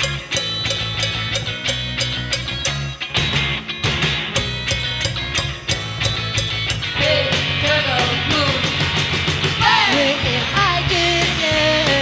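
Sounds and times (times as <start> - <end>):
live pop band playing: 0.0 - 12.0
person singing: 7.0 - 8.8, 9.6 - 12.0.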